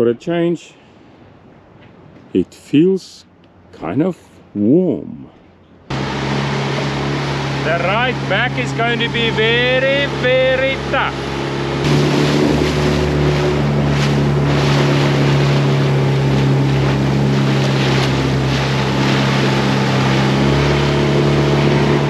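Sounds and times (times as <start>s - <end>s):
outboard motor drone: 5.6s - 22.0s
water rushing past hull: 5.9s - 22.0s
wind buffeting microphone: 5.9s - 22.0s.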